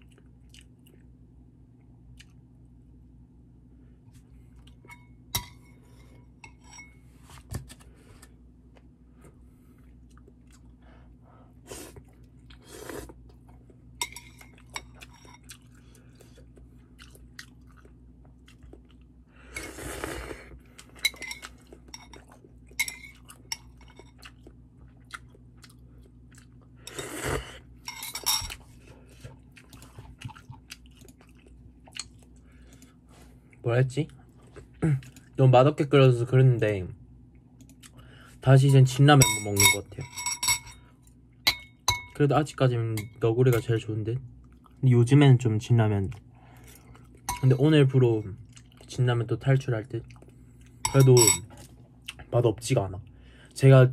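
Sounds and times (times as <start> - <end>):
chewing: 0.0 - 1.1, 14.4 - 19.1, 20.5 - 27.0, 28.4 - 35.4, 48.4 - 48.9, 50.0 - 50.8
slurping broth: 11.7 - 13.2.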